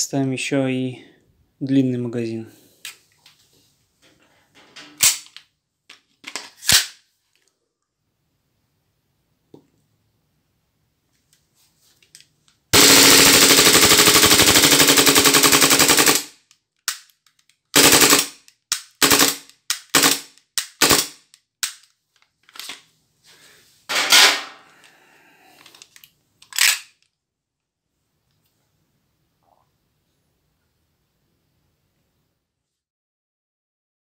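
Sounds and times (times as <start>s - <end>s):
airsoft pistol firing bursts: 12.8s - 17.0s, 17.7s - 21.2s.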